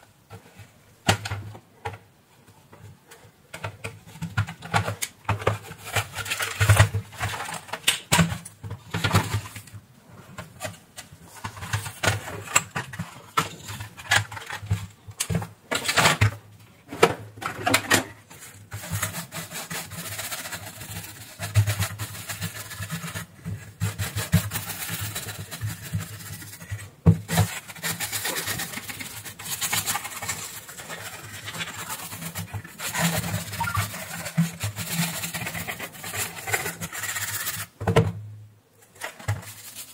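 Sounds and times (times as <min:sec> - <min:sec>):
paintbrush scrubbing circuit board: 0:27.7 - 0:37.6.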